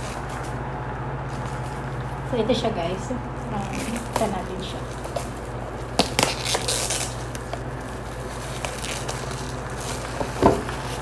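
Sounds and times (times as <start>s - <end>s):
plastic wrap crinkling: 3.4s - 11.0s.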